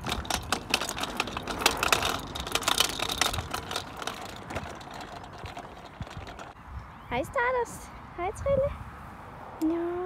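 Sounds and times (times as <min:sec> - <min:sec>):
scooter wheels rattling on paving: 0:00.0 - 0:06.6.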